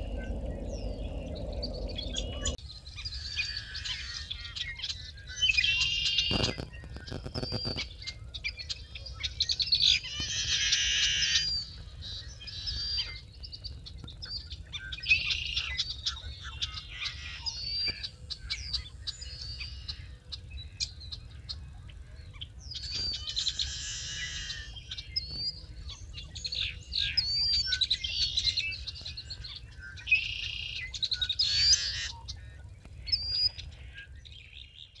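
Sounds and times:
low rumble: 0.0s - 3.1s
birds singing and chirping: 0.0s - 35.0s.

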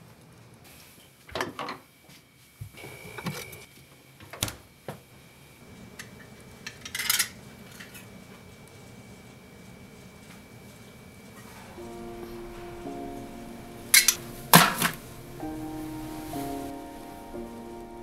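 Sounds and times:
hissing rustle: 7.4s - 18.0s.

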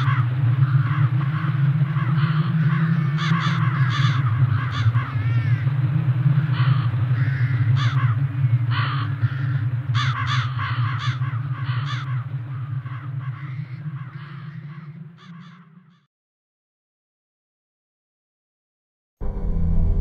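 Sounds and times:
crows cawing: 0.0s - 5.8s, 6.4s - 16.1s
low steady drone: 19.2s - 20.0s.

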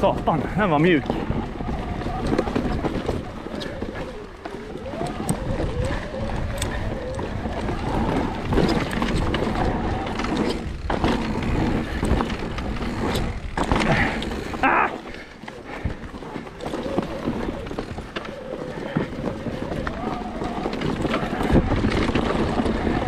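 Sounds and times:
bike rattling over bumps: 0.0s - 23.0s
bike tyres rumbling on dirt: 0.0s - 23.0s.

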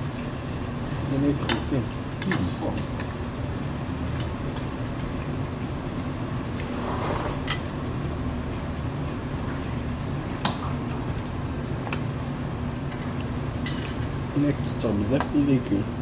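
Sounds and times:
steady low hum: 0.0s - 16.0s
person slurping broth: 6.5s - 7.5s.

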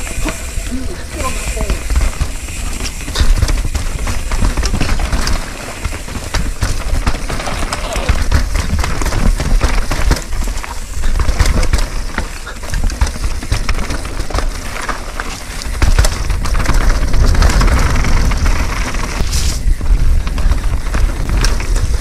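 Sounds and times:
bike knocking and rattling: 0.0s - 22.0s
tyres on dirt and rock: 0.0s - 22.0s
wind rumble on microphone: 15.6s - 22.0s.

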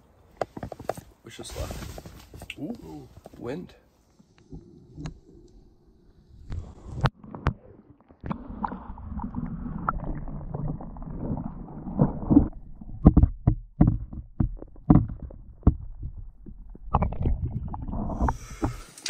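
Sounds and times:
dull knocks: 13.0s - 16.2s.

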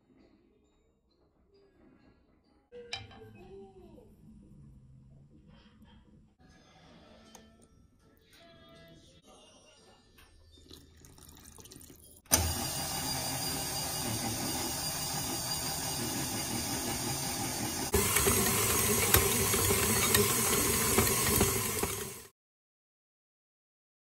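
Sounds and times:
mixer beater knocking: 12.3s - 22.3s
stand mixer motor running: 12.3s - 22.3s.

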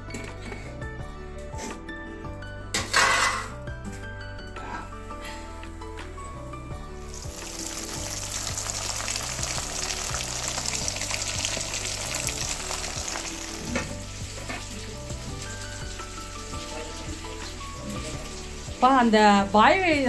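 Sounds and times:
soft background music: 0.0s - 20.0s
meat sizzling in hot oil: 7.0s - 20.0s.

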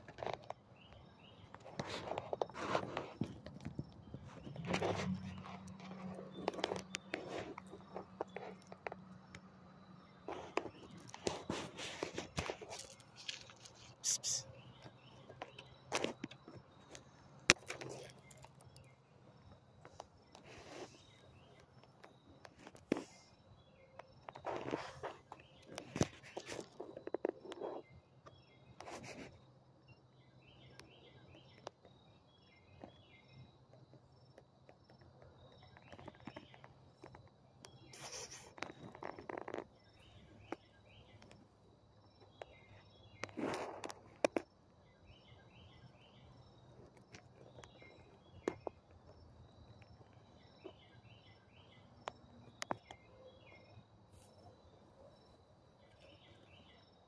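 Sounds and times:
brief rustling noises: 37.9s - 39.5s.

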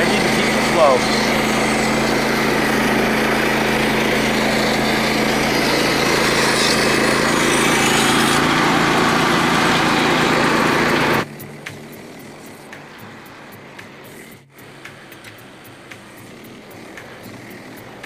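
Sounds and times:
band blade cutting wood: 0.0s - 12.9s
gasoline engine running: 0.0s - 18.0s
faint ticks: 13.8s - 18.0s.

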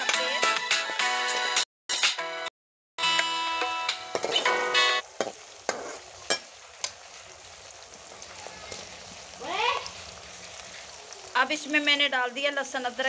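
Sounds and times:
music: 0.0s - 5.0s
onions sizzling in hot fat: 3.4s - 13.0s.

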